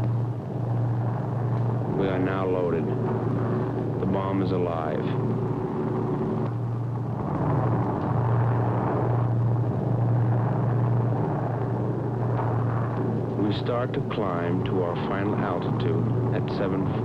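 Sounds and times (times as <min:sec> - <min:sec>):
propeller engines droning: 0:00.0 - 0:17.0.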